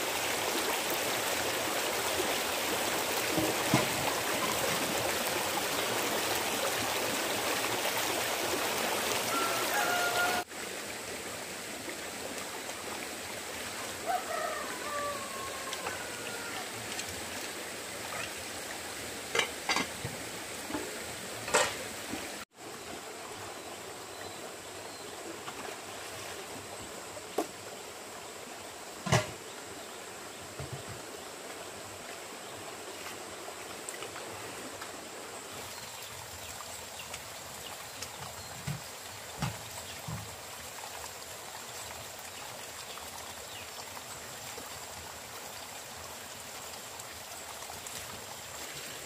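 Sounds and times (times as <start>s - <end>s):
running water rushing: 0.0s - 49.0s.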